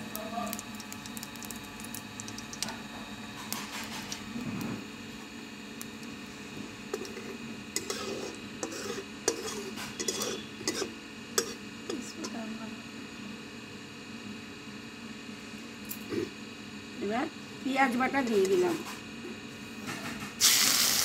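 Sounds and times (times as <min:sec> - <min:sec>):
seeds sizzling in hot oil: 0:00.0 - 0:04.4, 0:07.0 - 0:11.6, 0:20.4 - 0:21.0
metal spatula scraping a pan: 0:07.0 - 0:11.6.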